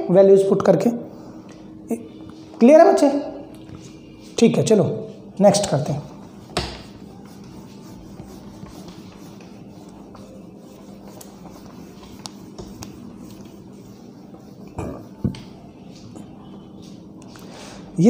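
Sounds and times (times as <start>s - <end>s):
room hum: 0.0s - 18.0s
cloth rubbing on whiteboard: 5.8s - 16.1s.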